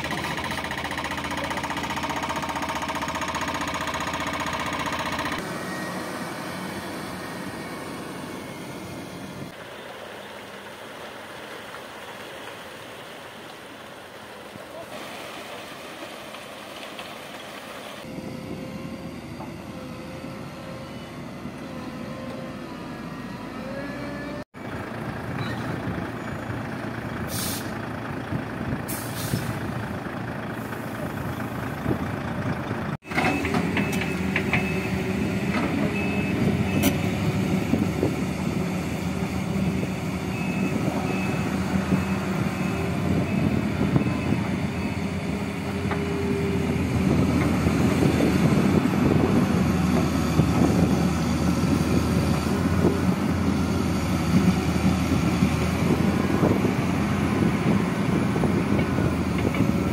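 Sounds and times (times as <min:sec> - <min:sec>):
excavator engine working: 0:00.0 - 0:11.3, 0:18.0 - 0:59.9
truck diesel engine running: 0:00.0 - 0:11.4, 0:18.1 - 0:59.9
air brake hissing: 0:27.3 - 0:27.8, 0:28.9 - 0:29.6
reversing alarm beeping: 0:40.2 - 0:45.2.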